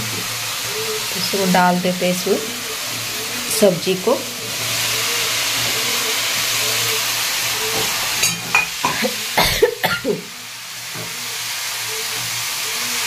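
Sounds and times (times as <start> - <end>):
vegetables sizzling in oil: 0.0 - 13.0.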